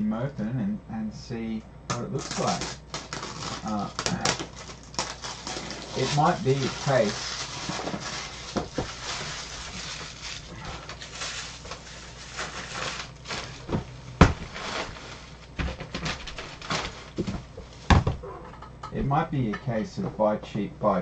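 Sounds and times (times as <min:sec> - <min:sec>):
plastic packaging crinkling: 0:02.2 - 0:18.0.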